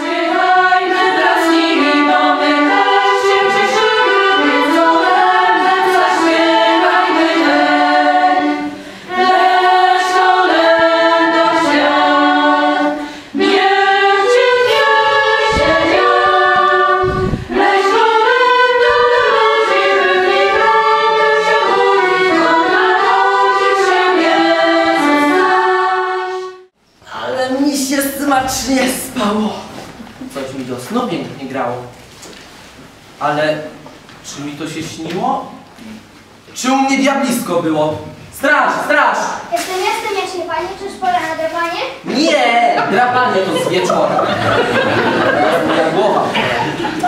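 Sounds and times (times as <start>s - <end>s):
choir singing a carol: 0.0s - 26.8s, 42.8s - 47.0s.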